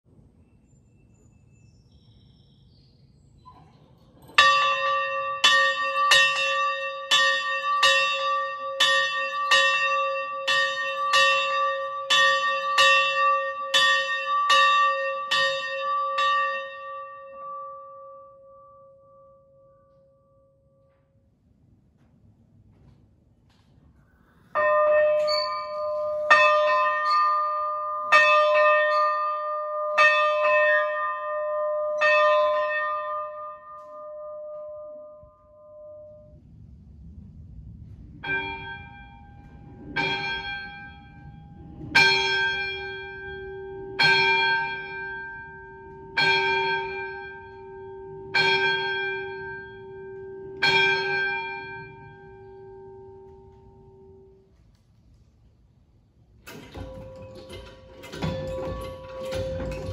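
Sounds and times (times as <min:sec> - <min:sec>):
lower-pitched locomotive bell: 0:03.5 - 0:21.3, 0:24.2 - 0:36.7, 0:38.2 - 0:54.5, 0:56.4 - 0:59.9
locomotive bell struck: 0:04.2 - 0:19.5, 0:24.5 - 0:36.4, 0:38.2 - 0:54.4, 0:56.4 - 0:59.9.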